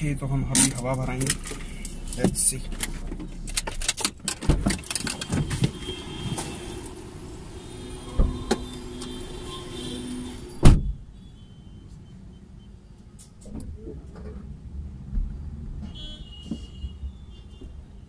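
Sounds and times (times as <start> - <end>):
street noise: 0.0 - 18.0
car door shutting: 8.1 - 9.2, 10.5 - 11.0.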